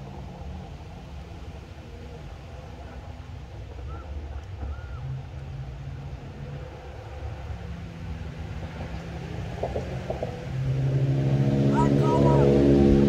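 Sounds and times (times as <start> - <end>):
motor engine humming: 10.1 - 13.0.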